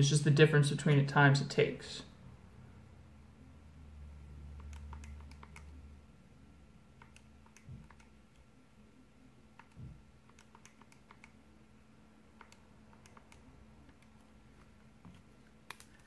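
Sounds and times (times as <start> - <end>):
calculator keys clicking: 9.6 - 11.4, 12.3 - 16.0.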